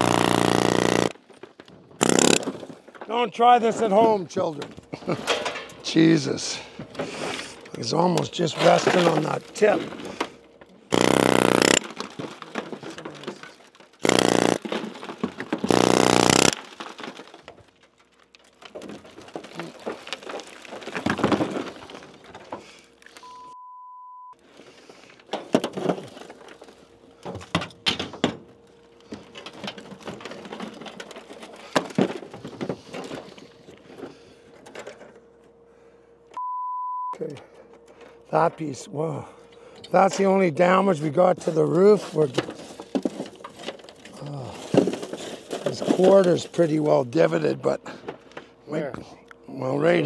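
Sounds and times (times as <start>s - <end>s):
loud harsh bursts: 0.0s - 1.1s, 2.0s - 2.4s, 10.9s - 11.9s, 14.0s - 14.6s, 15.7s - 16.6s
falling chunks clattering: 0.0s - 23.2s, 29.0s - 33.6s, 41.4s - 47.0s
censor bleep: 23.2s - 24.4s, 36.4s - 37.2s.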